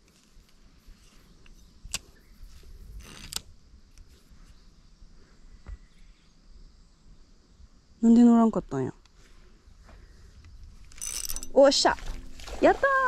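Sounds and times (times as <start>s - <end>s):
short rustle: 0.0s - 4.6s
fishing reel clicks: 3.0s - 3.5s, 11.0s - 11.6s.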